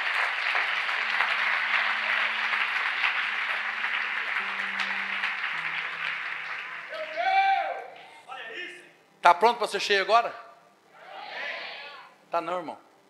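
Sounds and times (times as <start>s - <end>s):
congregation applauding: 0.0s - 8.7s.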